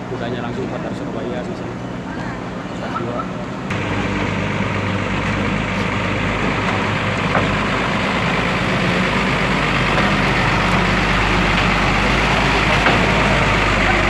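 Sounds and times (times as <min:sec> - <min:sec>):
truck diesel engine passing: 0:03.3 - 0:14.0.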